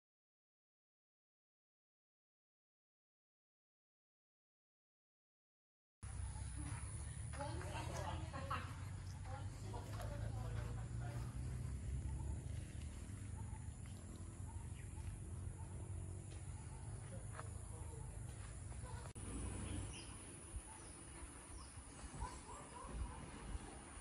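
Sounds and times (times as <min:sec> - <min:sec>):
low steady rumble: 0:06.0 - 0:24.0
faint bird chirps: 0:18.8 - 0:23.7.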